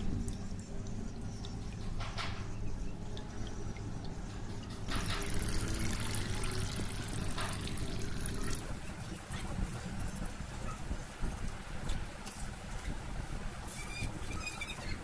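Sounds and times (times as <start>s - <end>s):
steady low hum: 0.0s - 11.9s
water trickling and splashing: 0.0s - 15.0s
toy boat paddles churning water: 4.9s - 11.0s.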